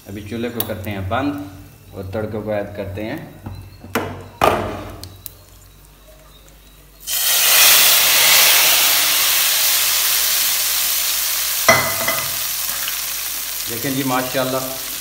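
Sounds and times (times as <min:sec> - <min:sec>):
hot oil sizzling: 0:07.0 - 0:15.0.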